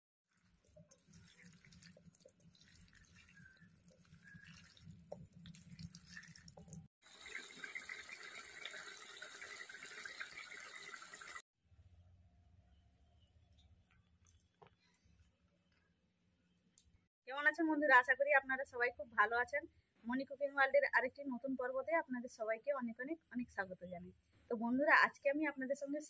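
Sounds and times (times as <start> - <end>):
hands mixing fish: 0.2 - 6.9
fish sizzling in hot oil: 0.2 - 11.4.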